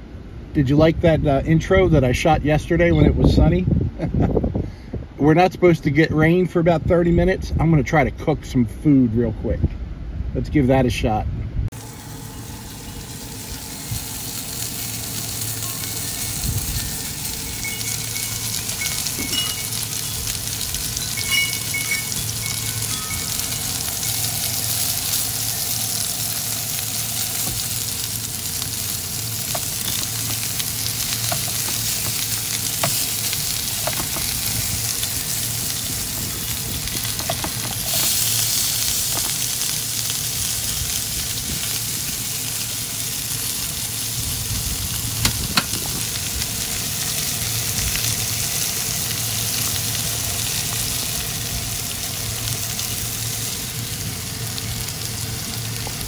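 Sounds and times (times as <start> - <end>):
food sizzling in frying pan: 11.7 - 56.0.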